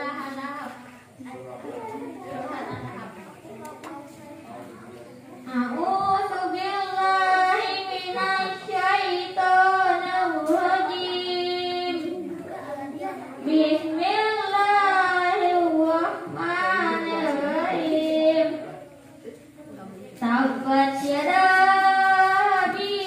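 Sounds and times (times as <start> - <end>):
child singing into microphone: 5.4 - 19.2, 20.2 - 23.0.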